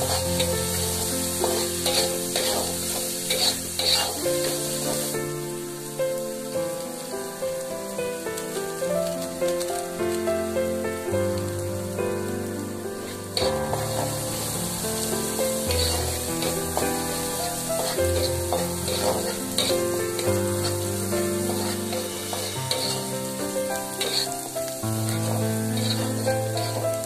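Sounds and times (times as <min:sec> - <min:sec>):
metal spatula scraping wok: 0:00.0 - 0:05.2, 0:13.0 - 0:27.0
background music: 0:00.0 - 0:27.0
food sizzling in oil: 0:00.0 - 0:27.0.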